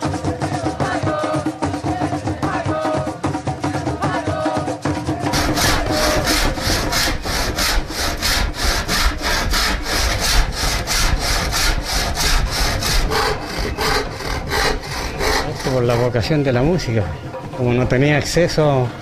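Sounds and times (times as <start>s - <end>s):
handsaw cutting wood: 5.3s - 16.6s.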